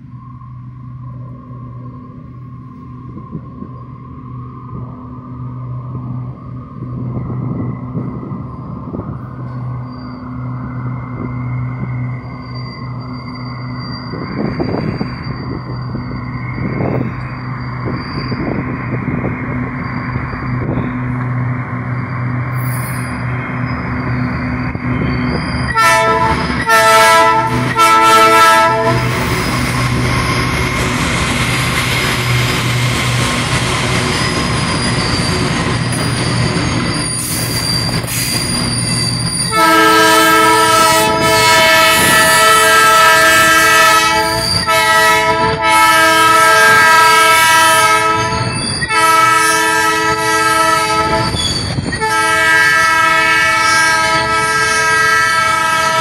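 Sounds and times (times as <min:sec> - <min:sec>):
locomotive air horn blasts: 0:25.7 - 0:29.3, 0:39.4 - 0:51.4, 0:52.0 - 0:56.0.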